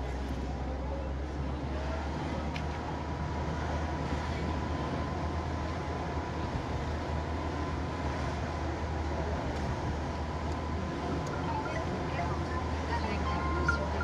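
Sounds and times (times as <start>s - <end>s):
car engine and road rumble: 0.0s - 14.0s
faint high tone: 11.3s - 14.0s.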